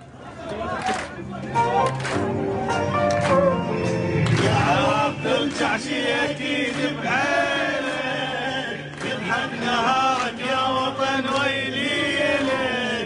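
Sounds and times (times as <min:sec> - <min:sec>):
men chanting and singing: 0:04.3 - 0:13.0.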